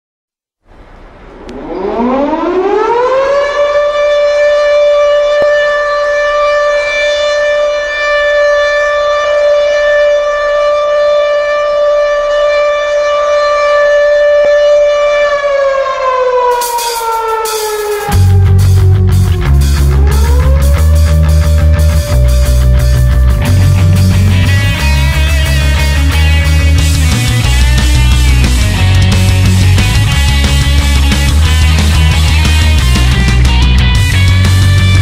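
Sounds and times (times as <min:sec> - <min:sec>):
air-raid siren wailing: 0:00.8 - 0:35.0
drum and cymbal hits: 0:16.5 - 0:35.0.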